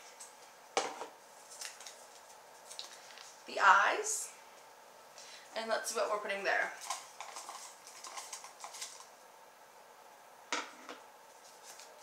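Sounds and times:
hands rummaging through paper slips: 6.8 - 9.1.

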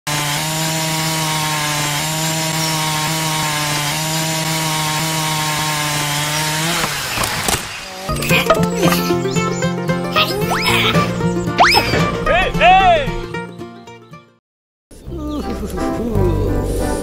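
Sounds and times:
miniature disc saw cutting wood: 0.1 - 9.2
music: 8.1 - 14.4, 15.0 - 17.0.

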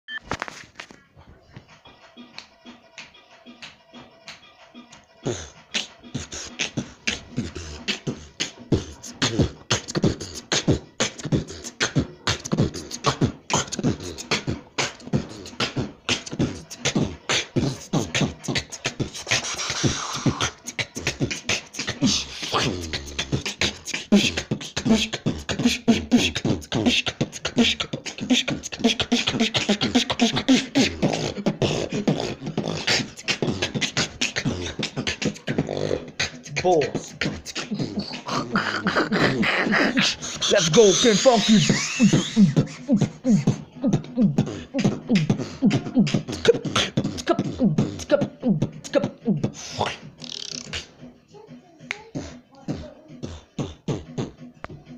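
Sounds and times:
person beatboxing: 3.0 - 51.0, 51.9 - 54.9
hummed vocal bass: 5.2 - 51.0.

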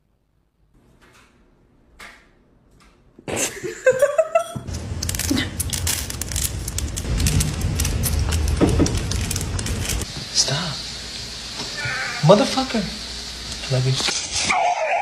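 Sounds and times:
kitten crunching dry kibble: 4.7 - 10.0
low rumbling undertone: 4.7 - 10.1.

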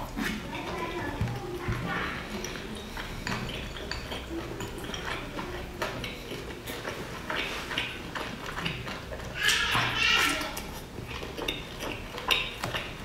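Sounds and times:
chewing and wet mouth sounds: 0.0 - 13.0.

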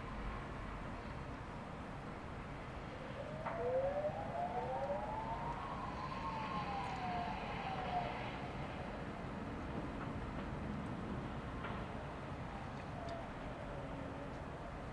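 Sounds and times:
sirens wailing: 2.9 - 9.5.

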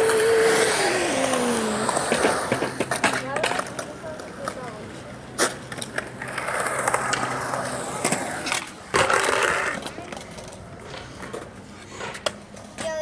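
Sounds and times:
skateboard clacks: 0.0 - 13.0
skateboard wheels rolling on concrete: 0.0 - 13.0.

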